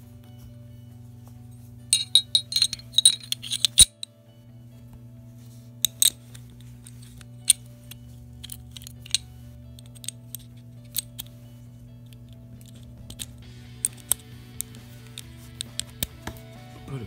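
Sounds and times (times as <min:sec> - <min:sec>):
metallic clicking of pistol parts: 0:02.0 - 0:04.1, 0:05.8 - 0:11.4, 0:12.0 - 0:16.2.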